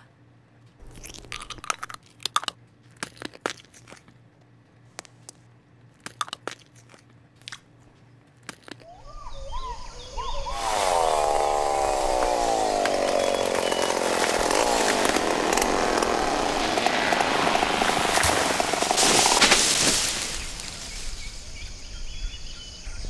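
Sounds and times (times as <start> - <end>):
crunchy chewing: 0.8 - 4.3, 4.9 - 8.9, 10.6 - 21.3
chainsaw running: 10.4 - 21.3.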